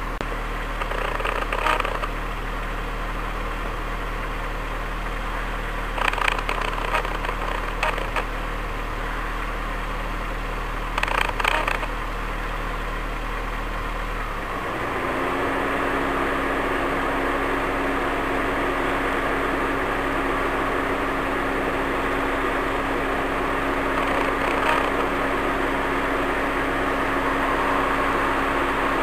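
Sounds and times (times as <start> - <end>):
engine idling: 0.0 - 29.0
rattle of clicks: 0.7 - 2.1, 6.0 - 8.3, 10.9 - 11.9, 23.9 - 25.1.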